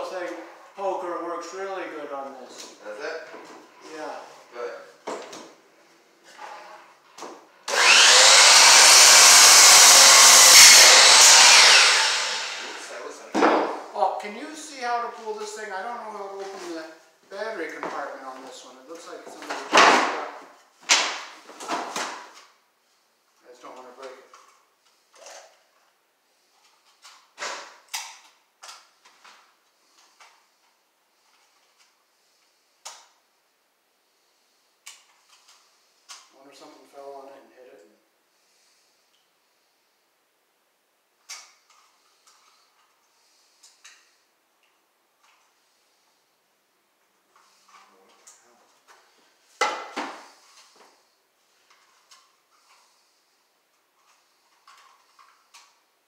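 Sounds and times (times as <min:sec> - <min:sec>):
electric power tool motor: 0:07.7 - 0:12.9.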